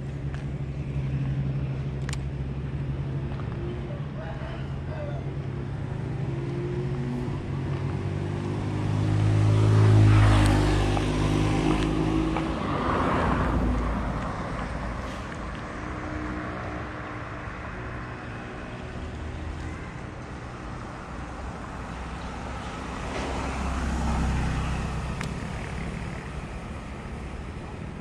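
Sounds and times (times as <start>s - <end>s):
vehicle driving past: 5.4s - 19.6s, 20.4s - 27.2s.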